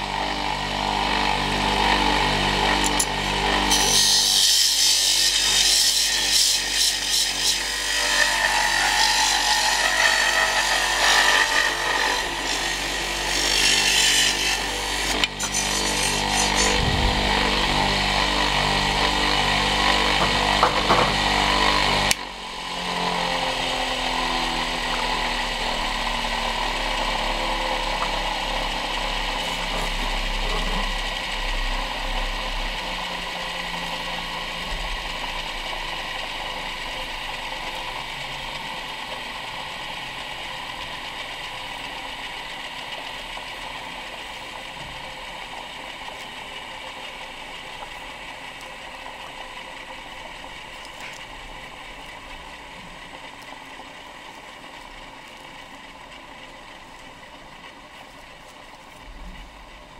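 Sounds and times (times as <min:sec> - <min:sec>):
wood lathe motor running: 0:00.0 - 0:58.9
cutting tool scraping wood: 0:02.7 - 0:22.2.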